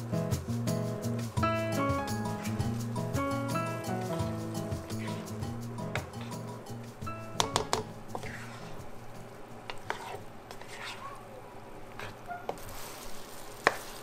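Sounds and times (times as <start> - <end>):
spatula stirring and scraping: 2.3 - 11.2, 11.9 - 14.0
apples sizzling in a frying pan: 12.2 - 14.0.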